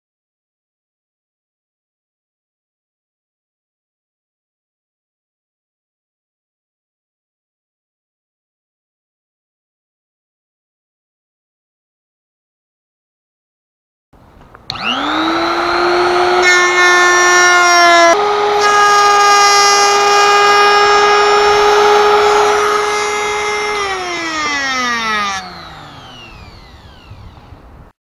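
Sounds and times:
electric router whining: 14.7 - 27.9.

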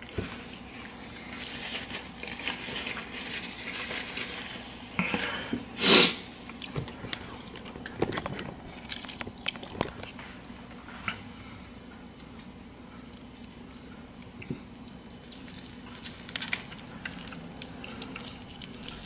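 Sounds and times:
person chewing with wet clicks: 6.5 - 10.2, 12.0 - 19.0.

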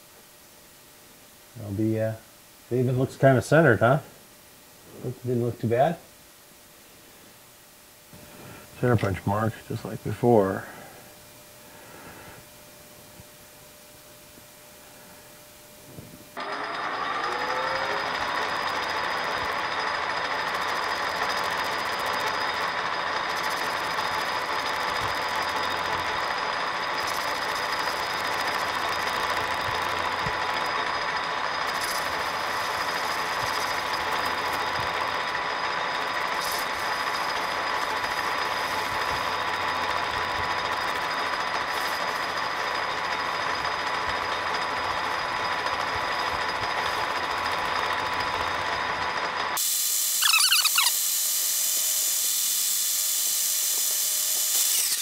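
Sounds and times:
metal lathe motor whining: 15.4 - 55.0.

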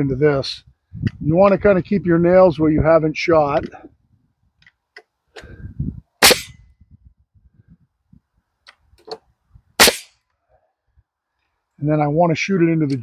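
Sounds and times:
nail gun shots: 6.2 - 6.6, 9.8 - 10.1.

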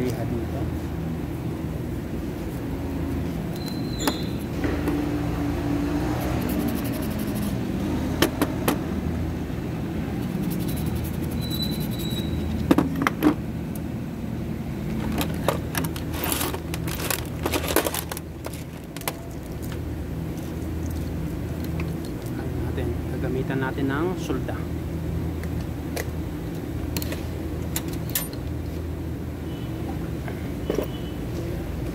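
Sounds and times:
steady low hum: 4.3 - 30.7
small parts clicking and scraping: 15.0 - 19.8.

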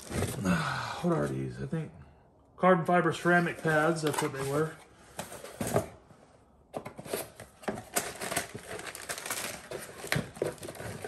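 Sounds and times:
plastic bags and paper crinkling: 3.4 - 4.8, 7.0 - 11.0.

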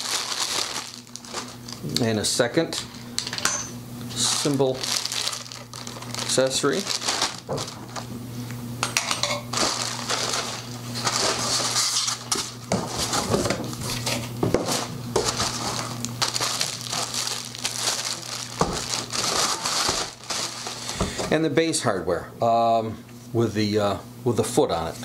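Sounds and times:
plastic bags crinkling: 0.0 - 2.1, 4.1 - 8.1, 9.2 - 13.8, 14.7 - 21.3
steady low hum: 0.0 - 25.0.

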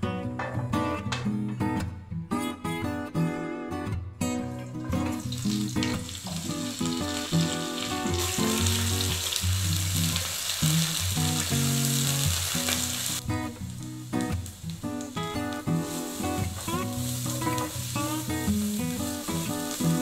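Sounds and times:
acoustic guitar music: 0.0 - 20.0
onion sizzling in hot oil: 5.0 - 20.0.

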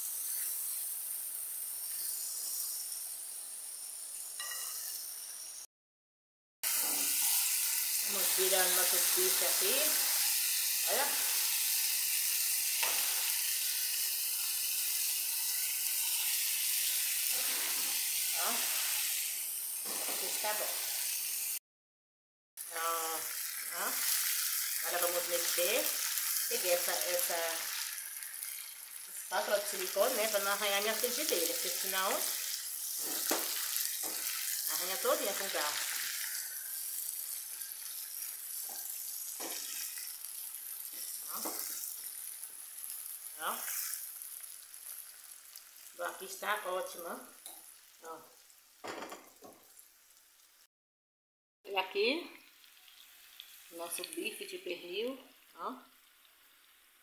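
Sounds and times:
meat sizzling in frying pan: 0.0 - 5.6, 6.6 - 21.6, 22.6 - 50.7, 51.9 - 57.0.

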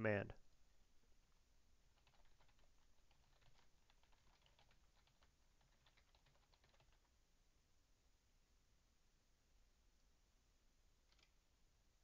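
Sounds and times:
typing on computer keyboard: 1.9 - 7.1, 11.1 - 11.4.

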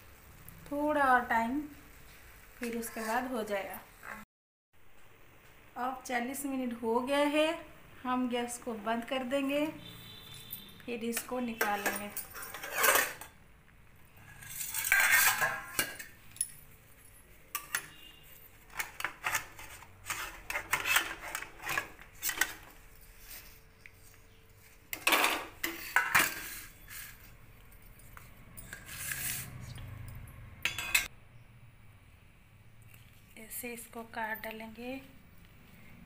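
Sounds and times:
steel pot and lid clanking: 11.1 - 13.4, 17.5 - 22.7, 30.6 - 31.1.

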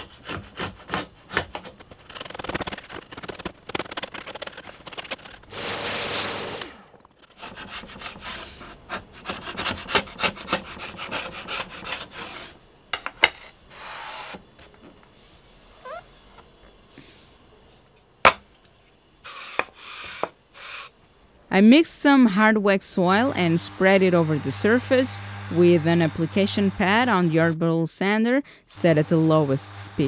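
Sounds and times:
router plane scraping wood: 5.5 - 12.6.

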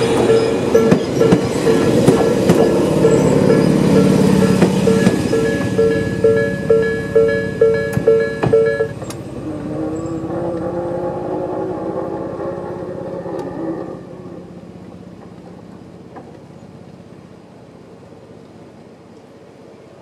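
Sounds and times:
level crossing warning bell: 0.0 - 9.0.

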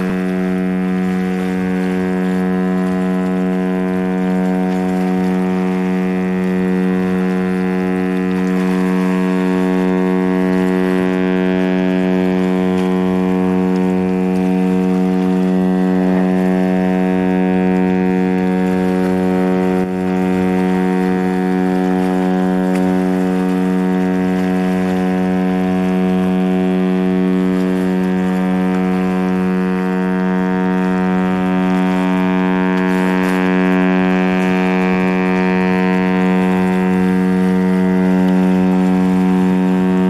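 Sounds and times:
ship whistle long low blast: 0.0 - 40.0.

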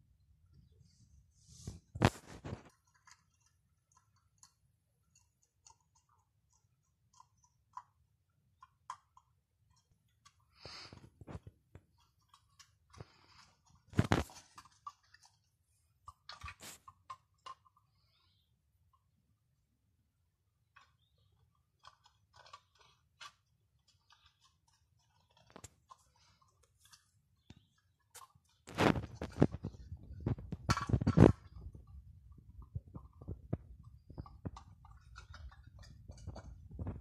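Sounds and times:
cats lapping yogurt: 2.1 - 17.9, 21.8 - 37.0.

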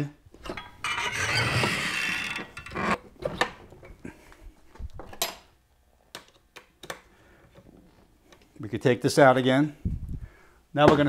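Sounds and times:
metal knocks and clinks: 0.4 - 2.8
metal scraping and clattering: 0.4 - 3.0.

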